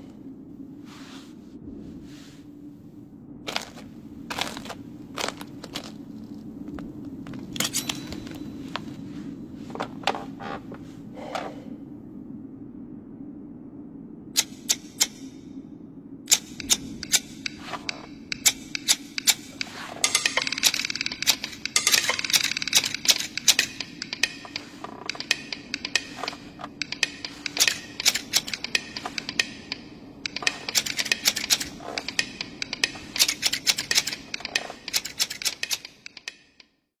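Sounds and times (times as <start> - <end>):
knitting needles clicking: 3.5 - 9.0, 14.4 - 15.3, 16.3 - 36.8.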